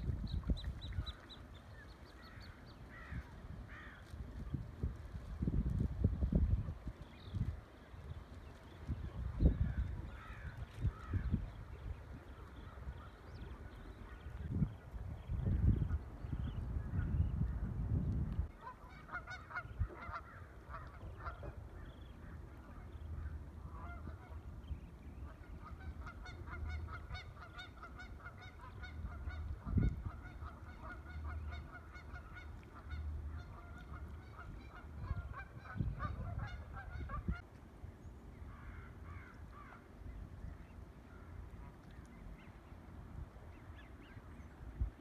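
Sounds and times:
waterfowl calling: 18.5 - 24.6, 25.2 - 37.4.

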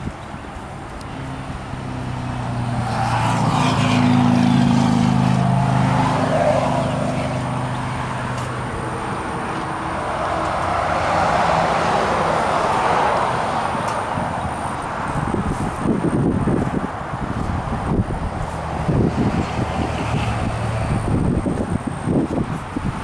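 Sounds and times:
road noise: 0.0 - 23.0
vehicle engine hum: 0.0 - 23.0.

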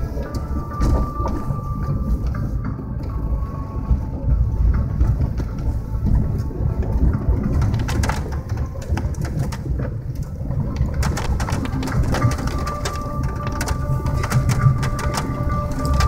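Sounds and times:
vehicle cabin rumble: 0.0 - 16.0
tyres crackling over ice: 4.7 - 16.0.

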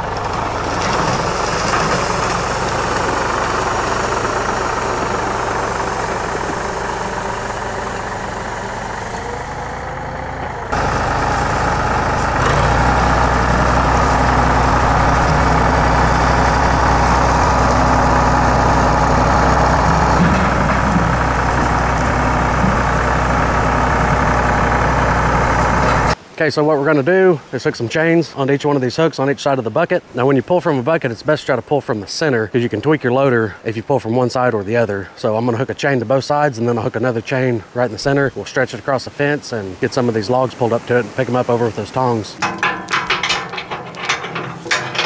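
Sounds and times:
tractor engine running: 0.0 - 26.2, 40.0 - 45.0.

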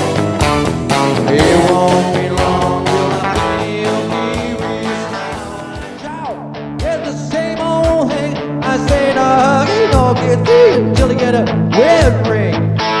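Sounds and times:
bass guitar: 0.0 - 13.0
electric guitar: 0.0 - 13.0
drum beat: 1.3 - 6.2.

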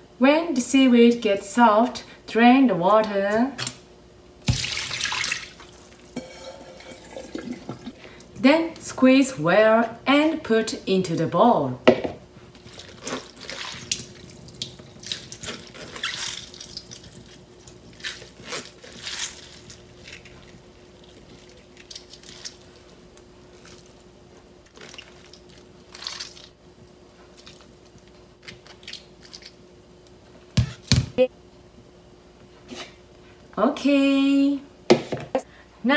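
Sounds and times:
water splashing and dripping into sink: 4.4 - 7.9.

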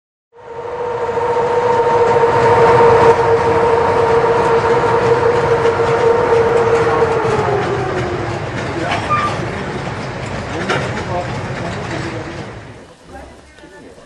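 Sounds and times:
high-pitched tone: 0.4 - 9.4
train rumble and rail noise: 0.4 - 14.0.

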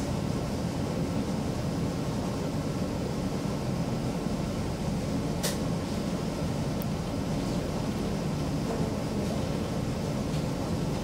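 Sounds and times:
train rumbling through tunnel: 0.0 - 11.0.

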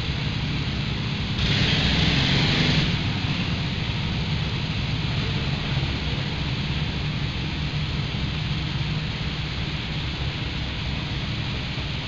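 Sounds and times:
go-kart engines rumbling: 0.0 - 12.0
hiss: 1.2 - 12.0.

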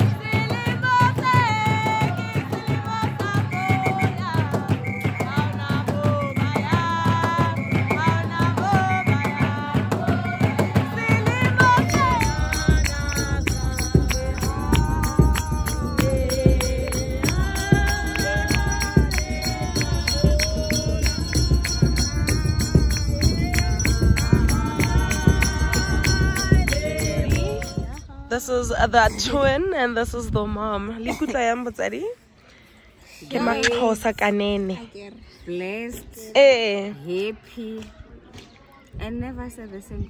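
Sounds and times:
group singing: 0.0 - 28.1
hand-clapping: 10.0 - 28.0.

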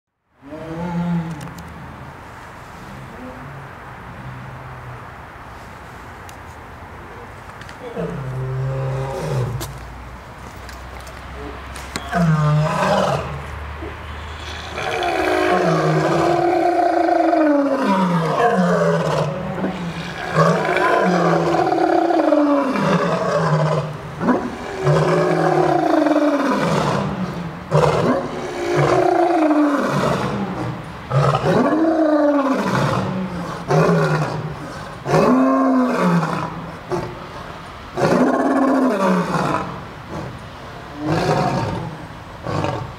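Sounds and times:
lion roaring: 7.8 - 9.6, 12.1 - 13.4, 14.3 - 37.1, 38.0 - 42.9.

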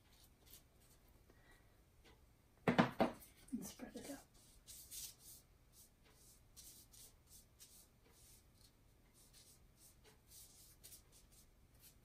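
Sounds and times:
brush swishing on wet surface: 4.0 - 12.0.

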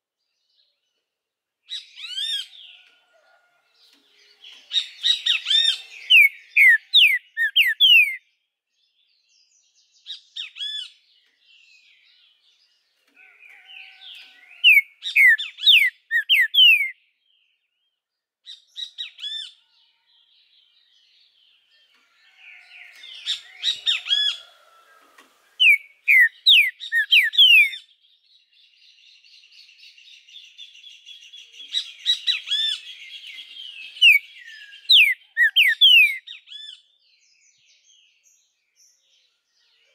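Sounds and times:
bird singing whistled phrases: 4.8 - 8.2, 14.7 - 17.0, 25.6 - 27.8, 31.8 - 36.8.

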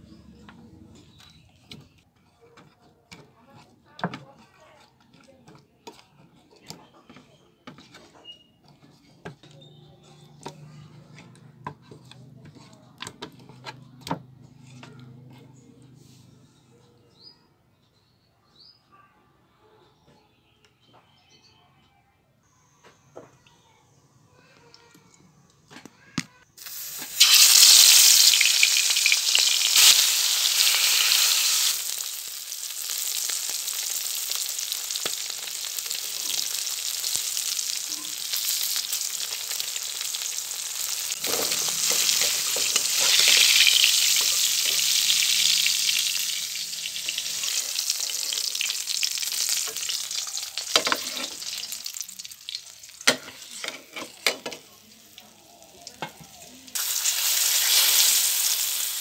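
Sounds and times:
fish frying in hot oil: 26.6 - 53.6, 54.4 - 59.0.

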